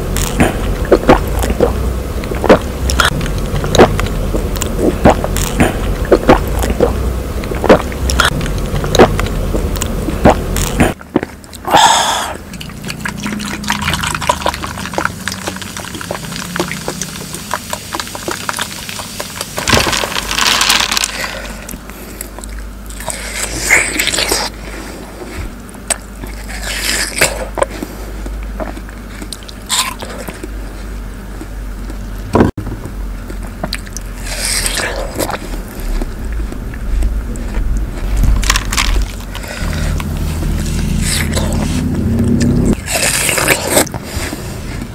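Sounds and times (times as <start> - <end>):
juicy bites into watermelon: 0.0 - 21.8, 33.3 - 44.9
slurping juice through a straw: 10.2 - 21.8, 22.9 - 25.5, 33.6 - 36.2, 36.8 - 44.9
juice pouring: 12.4 - 21.7.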